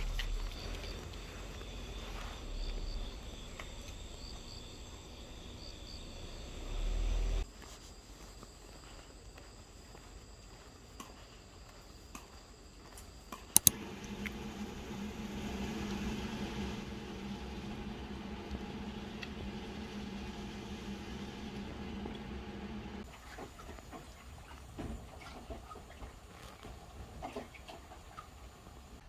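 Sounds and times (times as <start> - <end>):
sharp clicks: 13.5 - 14.4
appliance motor humming: 13.6 - 23.1.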